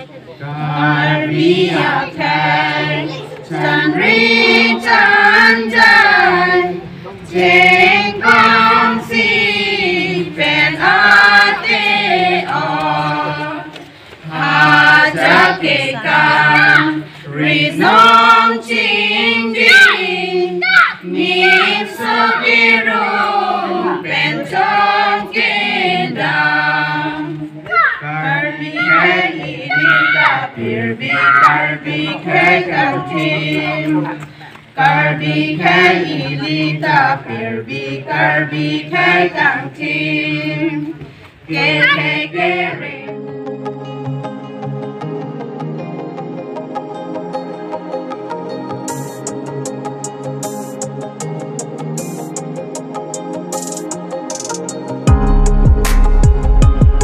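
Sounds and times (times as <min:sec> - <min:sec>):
group of women singing: 0:00.4 - 0:43.2.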